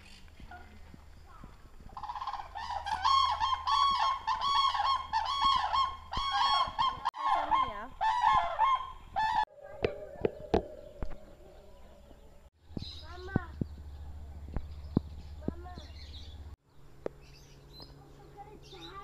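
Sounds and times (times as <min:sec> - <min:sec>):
flock of birds honking: 0:02.0 - 0:09.4.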